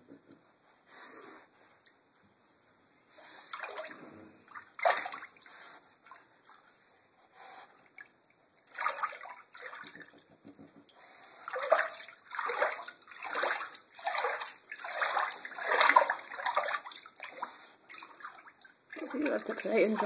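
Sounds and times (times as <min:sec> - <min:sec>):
dog splashing bathwater: 0:03.5 - 0:06.2, 0:08.0 - 0:10.2, 0:11.4 - 0:20.0.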